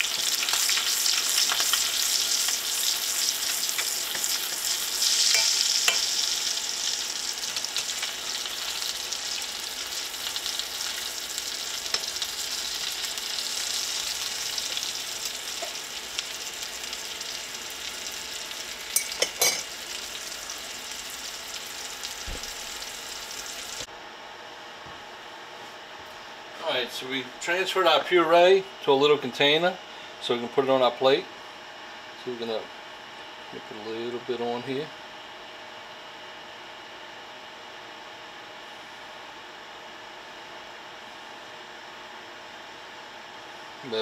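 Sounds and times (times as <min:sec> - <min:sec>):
scallops sizzling in butter: 0:00.0 - 0:23.9.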